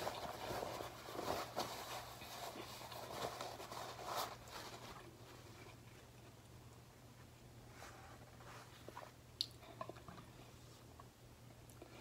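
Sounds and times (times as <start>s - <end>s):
paper towel crinkling: 0.0s - 5.9s.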